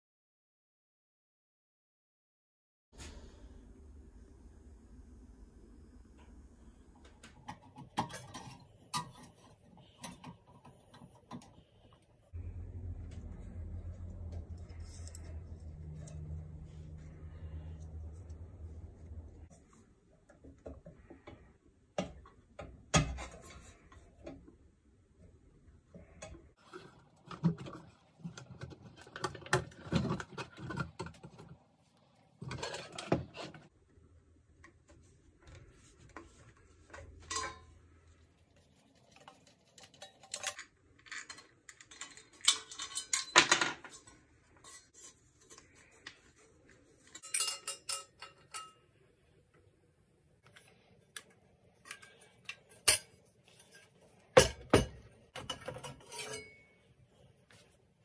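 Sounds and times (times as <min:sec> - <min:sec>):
screwdriver clinking on metal fan: 0:39.2 - 0:44.8, 0:47.0 - 0:48.8, 0:55.4 - 0:56.8.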